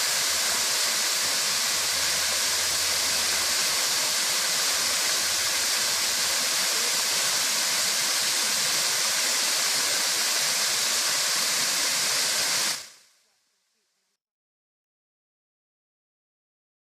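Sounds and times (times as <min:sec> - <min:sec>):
waterfall rushing hiss: 0:00.0 - 0:13.1.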